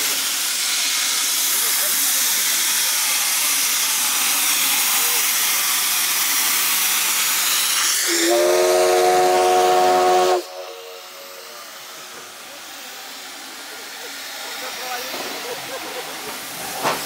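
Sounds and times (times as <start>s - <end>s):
steam locomotive hissing: 0.0s - 17.0s
deep steam whistle: 8.0s - 11.8s.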